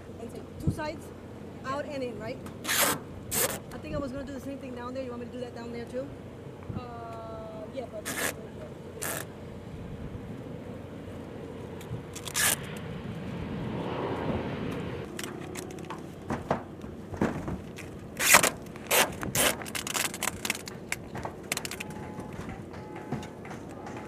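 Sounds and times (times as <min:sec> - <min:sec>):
tape ripping off roll: 0:02.6 - 0:03.6, 0:12.2 - 0:12.7, 0:15.1 - 0:22.0
plastic tarp crinkling: 0:17.6 - 0:22.0.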